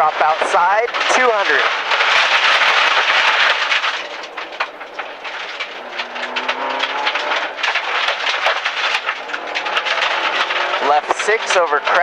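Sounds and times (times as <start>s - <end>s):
stones pelting car underbody: 0.0s - 12.0s
rally car engine accelerating: 5.0s - 12.0s.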